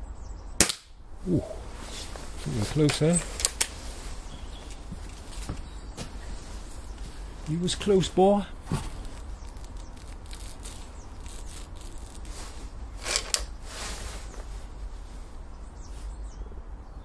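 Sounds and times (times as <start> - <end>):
low outdoor rumble: 0.0 - 17.0
air rifle barrel scraping open: 11.4 - 14.4.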